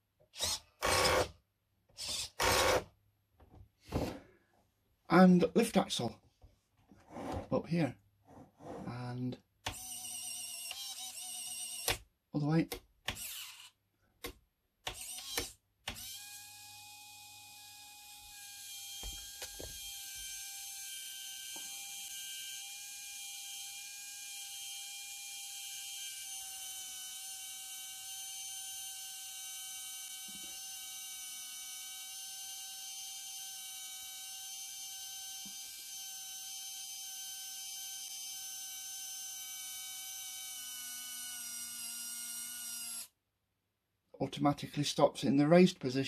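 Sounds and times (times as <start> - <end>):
small electric motor whine: 9.7 - 11.9, 15.0 - 43.2.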